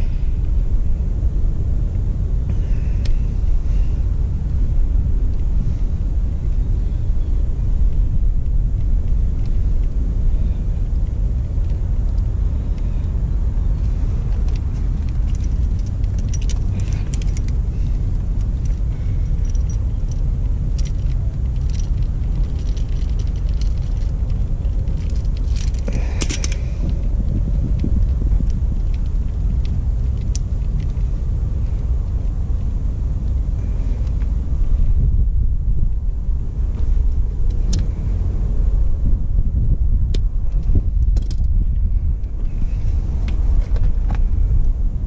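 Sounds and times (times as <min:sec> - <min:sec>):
steady low rumble: 0:00.0 - 0:45.0
plastic connectors clicking and rustling: 0:11.0 - 0:31.0.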